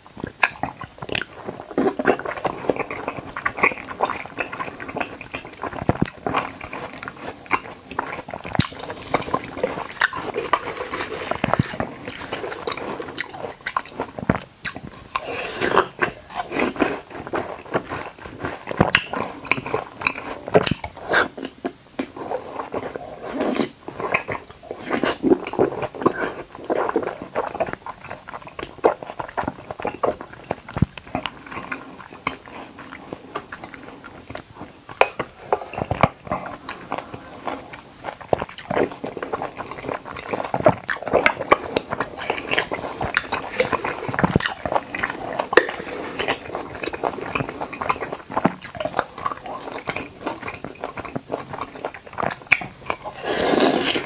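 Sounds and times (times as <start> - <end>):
wet slurping and juicy chewing: 0.0 - 54.0.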